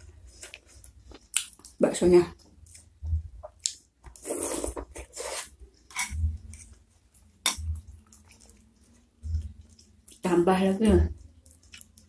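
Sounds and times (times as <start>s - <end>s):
chewing food: 2.4s - 12.0s.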